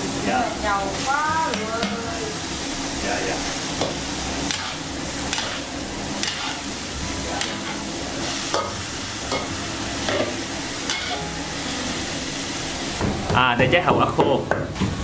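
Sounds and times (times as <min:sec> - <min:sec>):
food sizzling in a wok: 0:00.0 - 0:15.0
metal spatula scraping a wok: 0:04.5 - 0:06.7.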